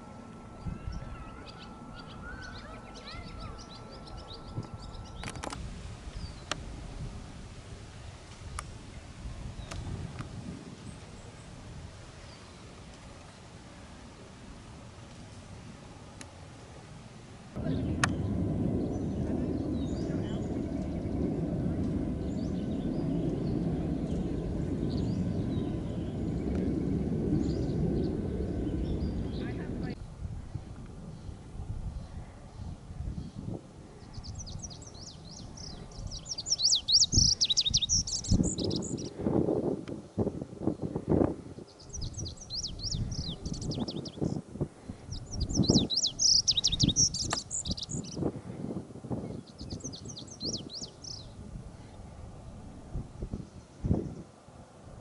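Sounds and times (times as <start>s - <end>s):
low outdoor rumble: 0.0s - 55.0s
faint bird chirps: 0.4s - 5.4s, 45.1s - 48.2s.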